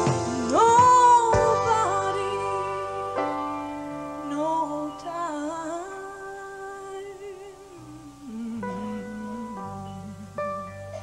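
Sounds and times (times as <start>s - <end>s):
band sustained chords: 0.0s - 4.7s.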